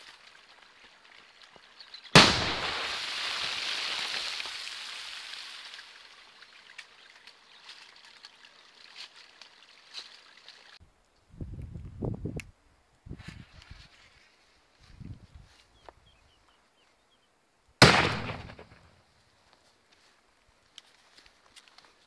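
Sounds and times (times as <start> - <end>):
small water patters: 0.0 - 2.1, 2.9 - 10.8
firecracker bang: 2.1 - 4.2, 17.8 - 18.8
water spray hissing: 2.6 - 6.3.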